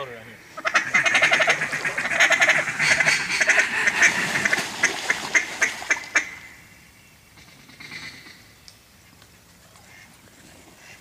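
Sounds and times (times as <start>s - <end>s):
duck call quacks: 0.6s - 6.4s.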